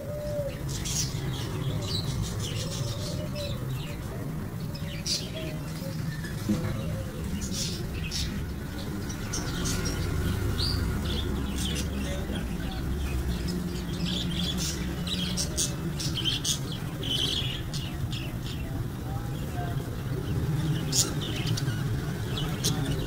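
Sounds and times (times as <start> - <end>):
budgerigars chirping: 7.1 - 18.8, 20.3 - 23.0.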